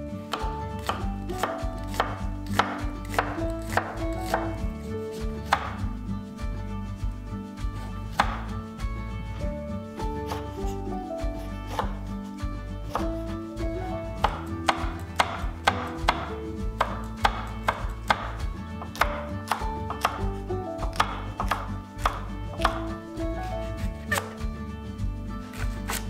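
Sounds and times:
knife chopping on wooden board: 0:00.3 - 0:05.8, 0:08.1 - 0:08.5, 0:10.2 - 0:10.6, 0:11.7 - 0:12.0, 0:12.9 - 0:13.2, 0:14.2 - 0:24.4.

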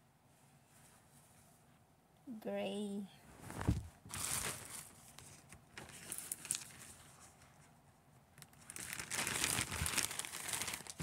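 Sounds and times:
clothing and packaging rustling: 0:03.3 - 0:07.8, 0:08.4 - 0:11.0.

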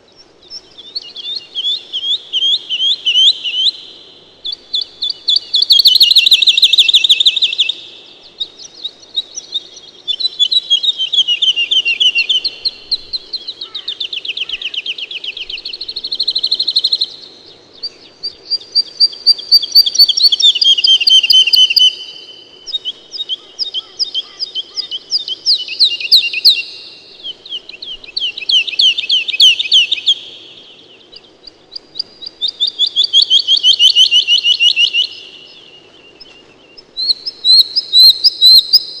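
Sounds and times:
songbirds trilling: 0:00.0 - 0:39.0.

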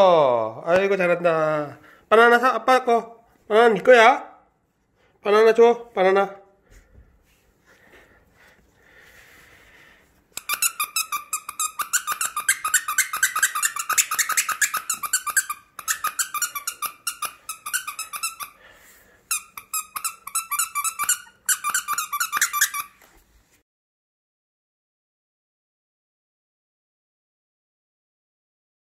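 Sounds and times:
squeaky plush toy squeaking: 0:10.4 - 0:18.6, 0:19.3 - 0:23.0.

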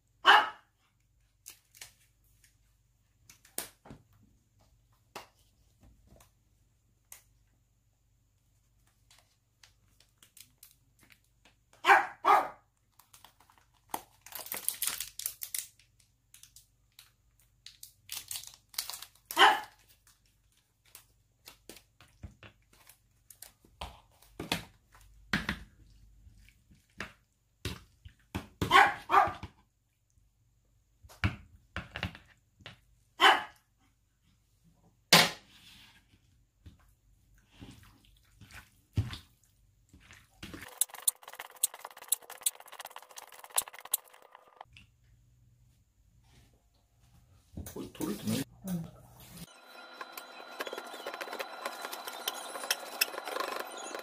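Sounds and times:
dog barking: 0:00.2 - 0:00.7, 0:11.8 - 0:12.7, 0:19.4 - 0:19.8, 0:28.6 - 0:29.4, 0:33.2 - 0:33.6
plastic tube crinkling: 0:12.9 - 0:21.8, 0:40.6 - 0:44.6.

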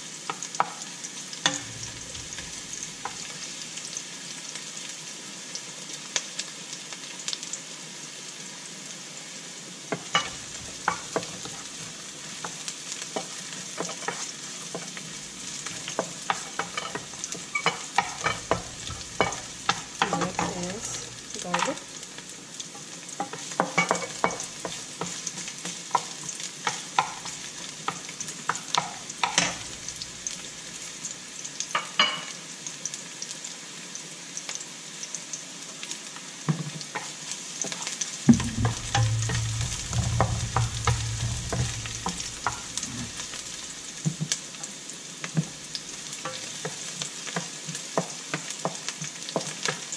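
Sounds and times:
onions sizzling in hot oil: 0:00.0 - 0:49.9
wooden spatula scraping a pan: 0:01.5 - 0:03.6, 0:10.0 - 0:21.8, 0:22.7 - 0:30.5, 0:36.8 - 0:44.4.

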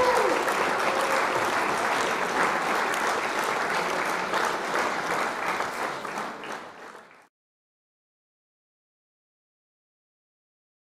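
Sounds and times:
applause: 0:00.0 - 0:07.3.

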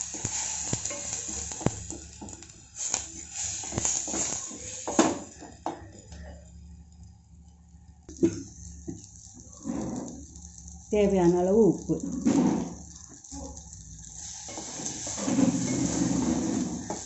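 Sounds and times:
spatula scraping metal pot: 0:09.6 - 0:10.3, 0:12.0 - 0:13.6, 0:14.2 - 0:17.0.

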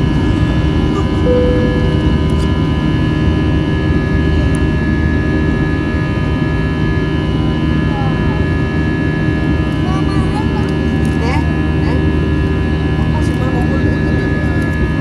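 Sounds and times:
steady whining tones: 0:00.0 - 0:04.7
jet engine and airflow rumble: 0:00.0 - 0:15.0.

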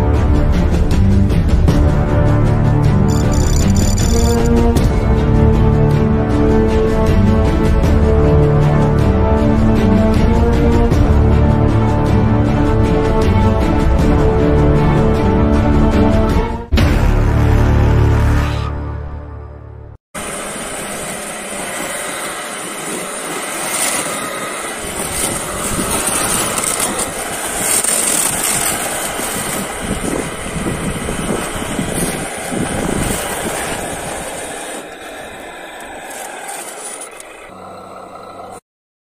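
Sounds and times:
plow scraping through snow: 0:03.0 - 0:05.2, 0:20.2 - 0:38.6
toy truck drivetrain whirring: 0:03.1 - 0:04.6, 0:20.2 - 0:38.6.

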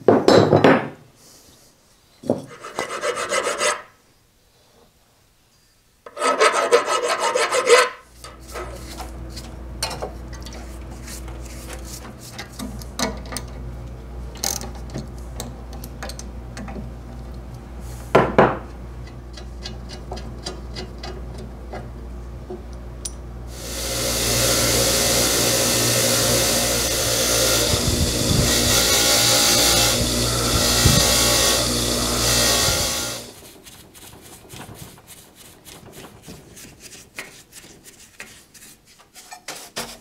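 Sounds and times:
rough rasping on metal: 0:02.5 - 0:03.9, 0:06.1 - 0:09.5, 0:23.6 - 0:33.4
bench grinder running: 0:08.2 - 0:13.6, 0:23.5 - 0:33.4.

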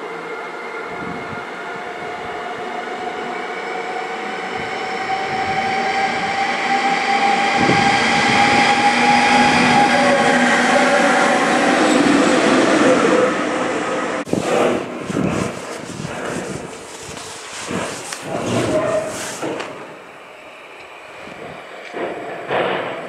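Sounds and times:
locomotive whining tones: 0:00.0 - 0:16.9
locomotives passing: 0:04.3 - 0:19.0.

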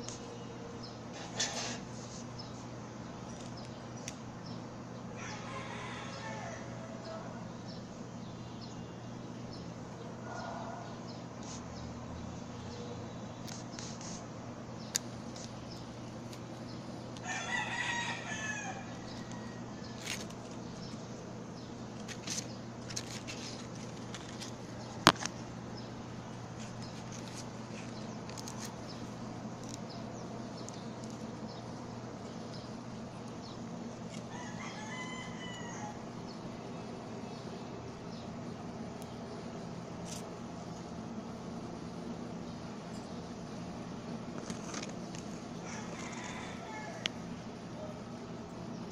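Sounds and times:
low background hum: 0:00.0 - 0:48.9
rooster crowing: 0:05.1 - 0:07.5, 0:17.2 - 0:20.3, 0:34.1 - 0:36.2, 0:45.6 - 0:47.4.

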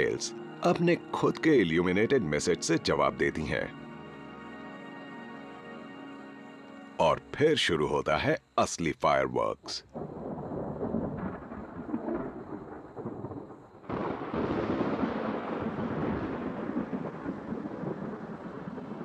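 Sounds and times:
thunder rumbling: 0:00.0 - 0:03.8, 0:09.9 - 0:19.0.

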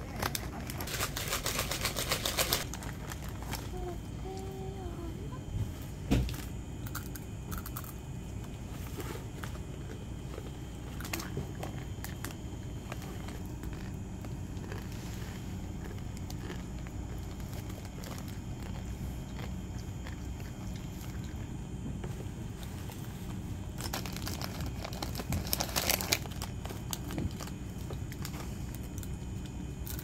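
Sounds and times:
plastic wrappers crackling: 0:00.0 - 0:04.5, 0:10.9 - 0:21.0, 0:23.7 - 0:29.2
low room hum: 0:00.0 - 0:30.0
crunchy snack being bitten: 0:06.8 - 0:08.0, 0:09.8 - 0:21.4.

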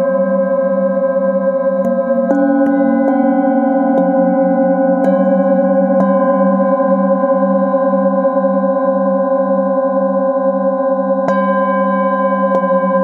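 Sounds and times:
singing bowls ringing: 0:00.0 - 0:13.0
singing bowl strike: 0:01.8 - 0:08.4, 0:11.2 - 0:13.0.

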